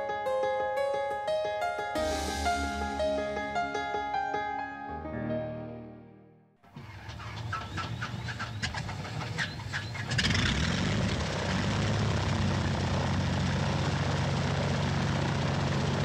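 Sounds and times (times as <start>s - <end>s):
propeller aircraft engine drone: 6.8s - 16.0s.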